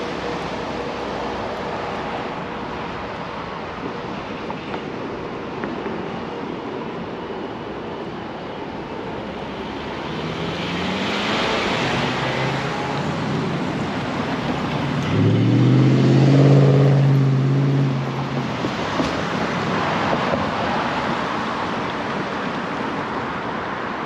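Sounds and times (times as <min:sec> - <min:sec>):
road traffic: 0:00.0 - 0:24.0
vehicle engine accelerating past: 0:14.8 - 0:18.2.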